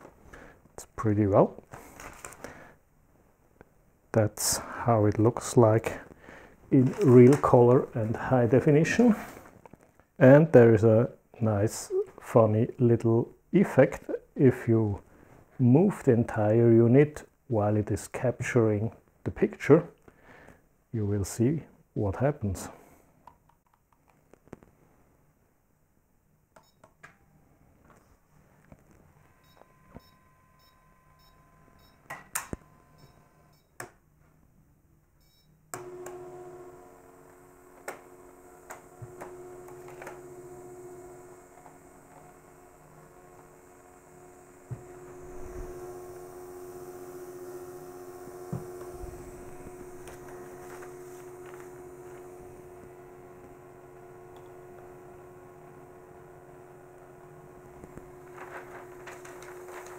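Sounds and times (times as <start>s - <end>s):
drive motors humming: 35.8s - 59.9s.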